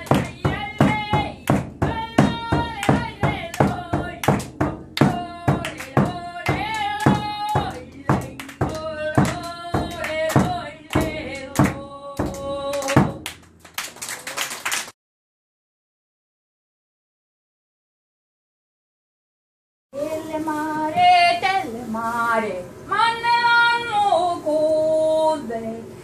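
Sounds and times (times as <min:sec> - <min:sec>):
steady drum beat: 0:00.0 - 0:13.6.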